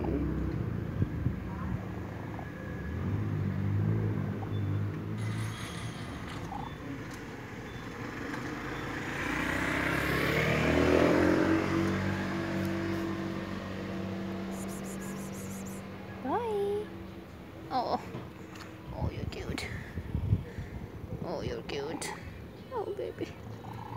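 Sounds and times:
car passing: 1.5s - 17.6s
low engine hum: 6.2s - 21.2s.

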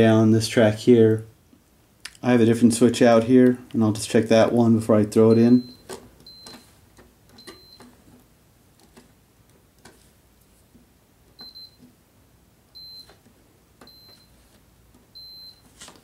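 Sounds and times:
continuity tester beeps: 5.3s - 6.7s, 7.4s - 7.9s, 11.4s - 11.8s, 12.7s - 13.2s, 13.8s - 14.4s, 15.1s - 15.7s.

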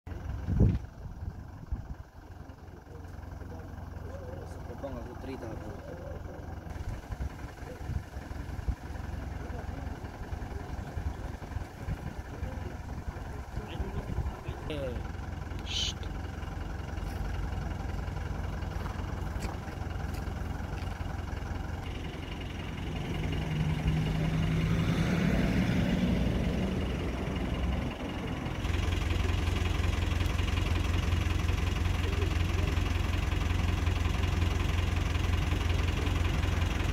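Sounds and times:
vehicle engine idling: 0.1s - 36.9s.

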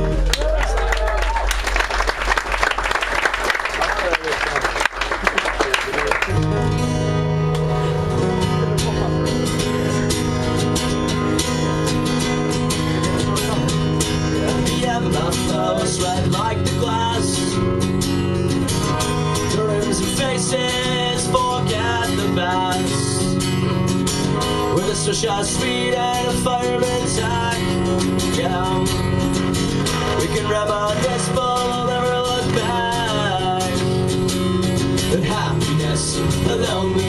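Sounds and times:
acoustic guitars strumming: 0.0s - 0.4s, 5.9s - 37.0s
man singing: 12.9s - 17.8s, 18.8s - 23.4s, 24.4s - 37.0s.

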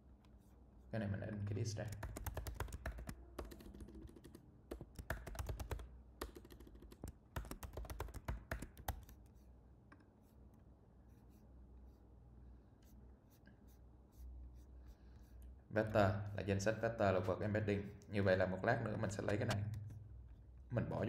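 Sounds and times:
typing on computer keyboard: 1.8s - 9.2s.

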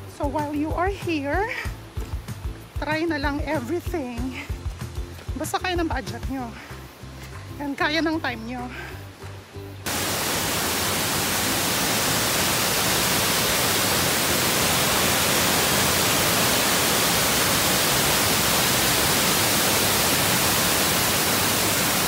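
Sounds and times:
waterfall rushing: 9.8s - 22.0s.

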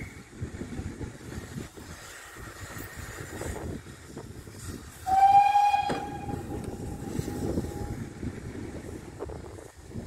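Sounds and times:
steam locomotive whistle: 5.0s - 8.2s.

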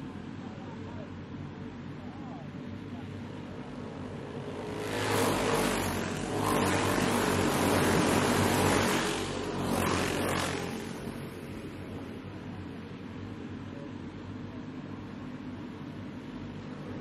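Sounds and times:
racing kart engines passing: 3.3s - 12.6s.

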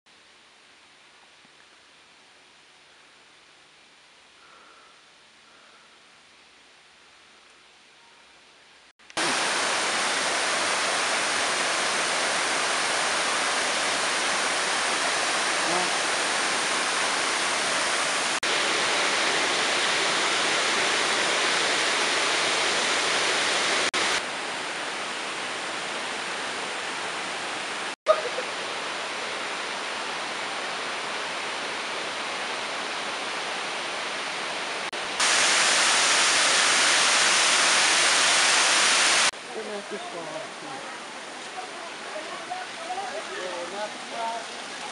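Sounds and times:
waterfall rushing and splashing: 9.1s - 44.9s.

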